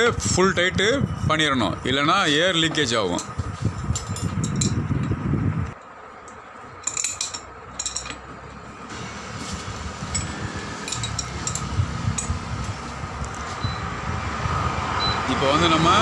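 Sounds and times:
metal clinks of spanner: 3.1 - 5.1, 6.2 - 8.3, 10.1 - 12.4.

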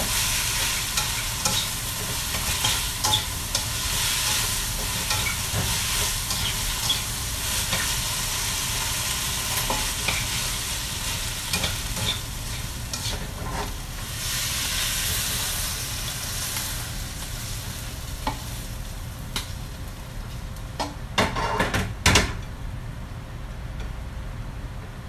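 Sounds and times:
spatula scraping a wok: 0.0 - 15.8, 21.2 - 21.7
food sizzling in a wok: 0.0 - 20.4.

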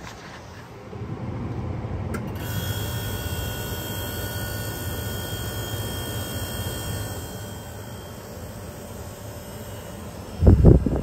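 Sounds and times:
air conditioner high whine: 0.0 - 11.0
air conditioner low hum: 0.0 - 11.0
air conditioner click: 1.5 - 2.6.

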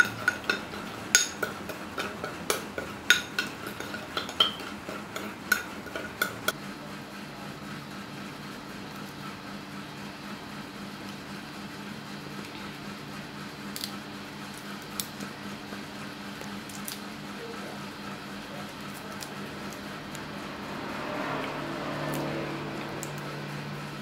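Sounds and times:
shrimp shells peeling: 16.4 - 17.2.

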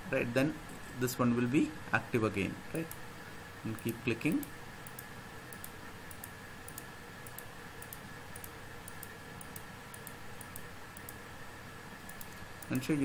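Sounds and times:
faint steady hum: 0.0 - 13.0
computer mouse clicking: 3.7 - 11.2, 12.0 - 12.8.

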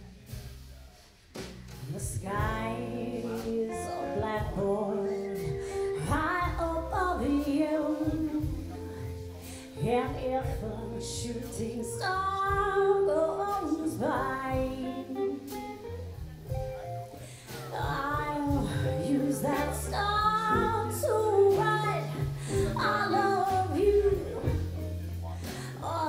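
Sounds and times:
drum kit: 0.0 - 26.0
electric bass: 0.0 - 26.0
woman singing: 1.9 - 15.8, 17.4 - 24.8, 25.4 - 26.0
electric guitar: 3.0 - 9.8, 12.4 - 26.0.

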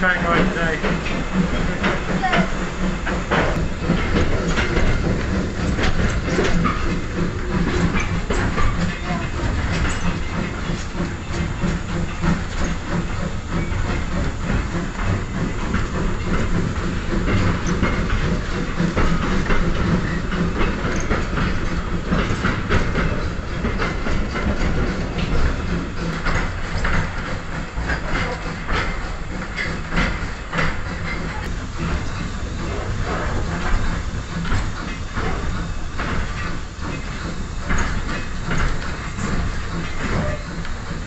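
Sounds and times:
train rumble: 0.0 - 41.0
wheels clattering over rail joints: 0.0 - 41.0.

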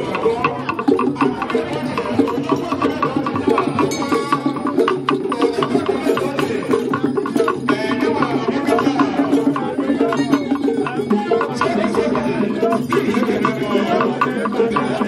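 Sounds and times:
hand-played wooden and pot drums: 0.0 - 15.0.

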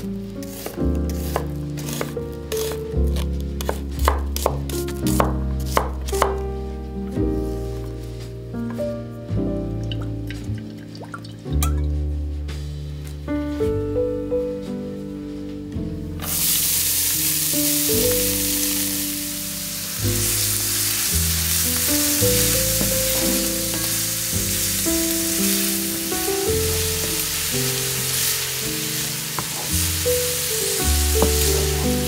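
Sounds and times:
onions sizzling in a pan: 0.0 - 4.5, 16.2 - 32.0
background music: 0.0 - 32.0
wooden spatula stirring: 0.3 - 5.8, 26.9 - 32.0.

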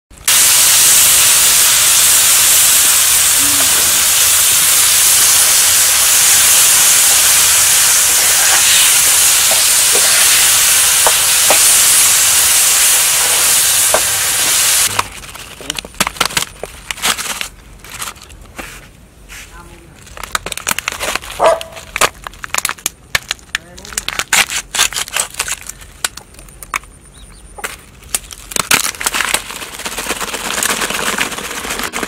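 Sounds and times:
food sizzling in hot oil: 0.2 - 15.0.

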